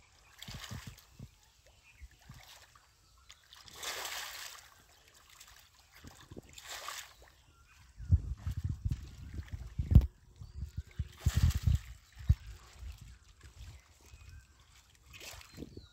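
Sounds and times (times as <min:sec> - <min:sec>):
fish thrashing in muddy water: 0:03.5 - 0:04.7, 0:11.1 - 0:12.6.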